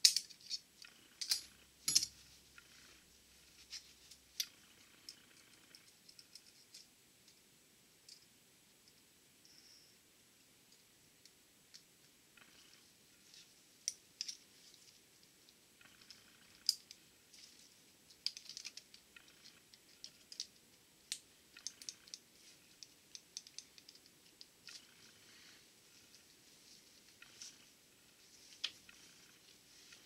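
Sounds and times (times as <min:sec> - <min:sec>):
pliers and metal clip clicking: 0:00.0 - 0:02.1.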